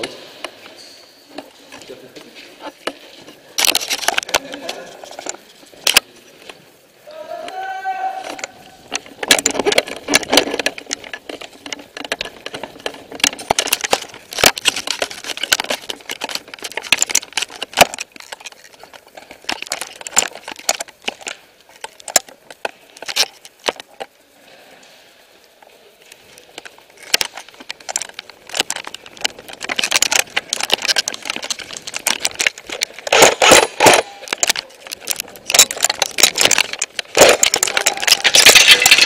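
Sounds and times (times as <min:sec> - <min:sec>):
gear and rifle rattling: 0:00.0 - 0:06.6, 0:08.2 - 0:24.1, 0:26.1 - 0:39.0
footsteps crunching over rubble: 0:08.7 - 0:24.1, 0:26.2 - 0:39.0.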